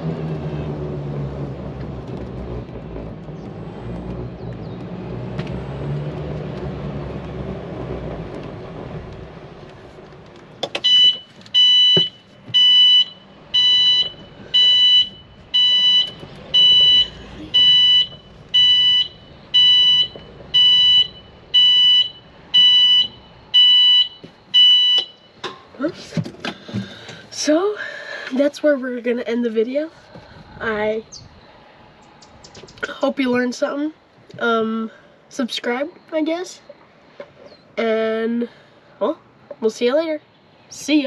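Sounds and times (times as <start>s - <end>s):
electric golf cart rolling: 0.0s - 25.3s
reverse warning beeper: 10.8s - 25.4s.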